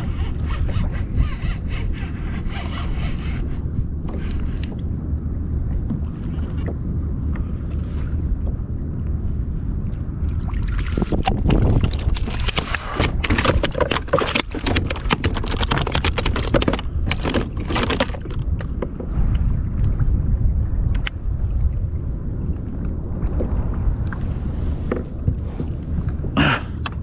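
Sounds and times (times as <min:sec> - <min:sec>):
wind rumble on microphone: 0:00.0 - 0:27.0
fish flopping on plastic deck: 0:10.8 - 0:18.8.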